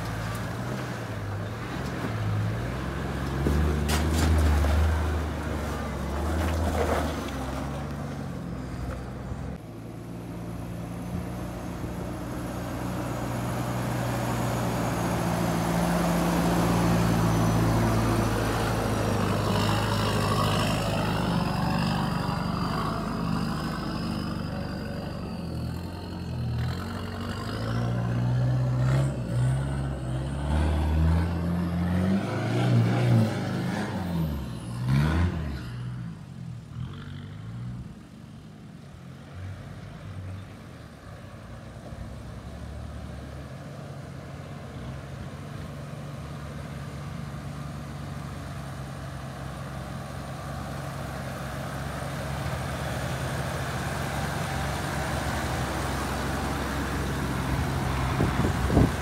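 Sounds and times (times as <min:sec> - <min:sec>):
off-road vehicle engine revving: 0:10.5 - 0:38.0, 0:47.4 - 0:59.0
engine running at low revs: 0:44.7 - 0:59.0.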